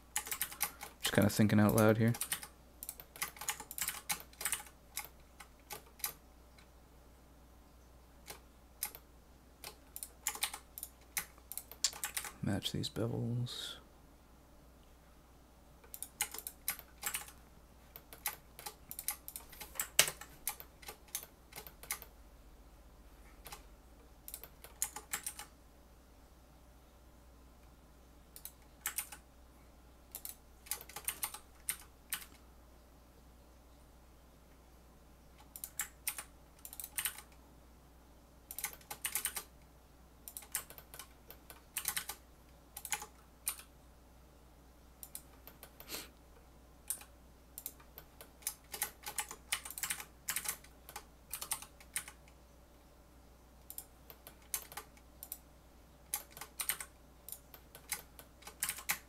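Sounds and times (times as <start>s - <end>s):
computer fan hum: 0.0s - 59.0s.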